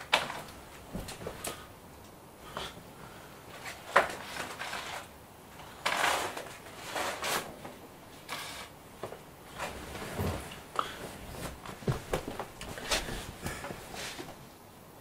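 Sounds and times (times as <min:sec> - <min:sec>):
rustling scrapes: 0:03.5 - 0:08.8, 0:09.5 - 0:14.4.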